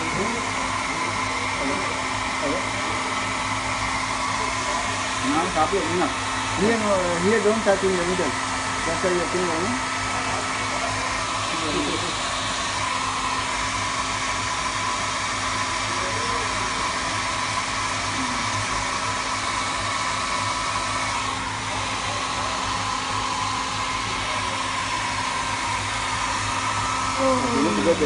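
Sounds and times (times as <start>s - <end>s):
hair dryer blowing: 0.0s - 28.0s.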